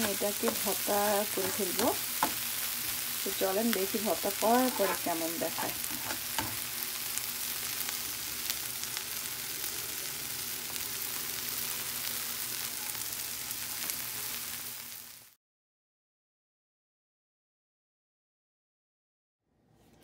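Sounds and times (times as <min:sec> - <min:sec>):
spatula scraping pan: 0:00.0 - 0:03.4, 0:04.0 - 0:06.8
shrimp and onion sizzling in oil: 0:00.0 - 0:15.4.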